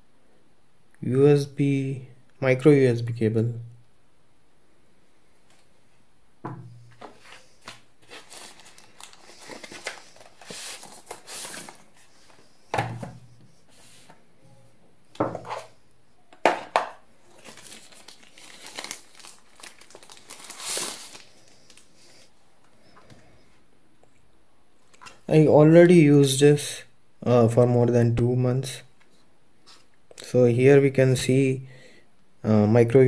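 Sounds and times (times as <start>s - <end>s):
plastic wrapping crinkling: 6.9s - 12.5s, 17.2s - 22.3s.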